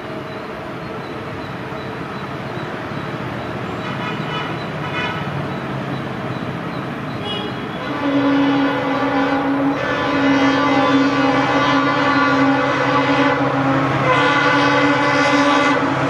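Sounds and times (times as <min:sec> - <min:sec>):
diesel locomotive engine and rolling: 0:00.0 - 0:16.0
locomotive horn: 0:03.8 - 0:05.4, 0:07.2 - 0:16.0.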